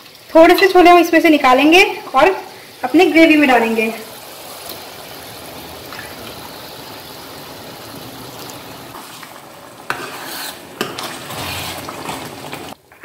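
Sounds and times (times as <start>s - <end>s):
gravy bubbling in a pan: 1.8s - 12.9s
stirring: 8.9s - 12.8s.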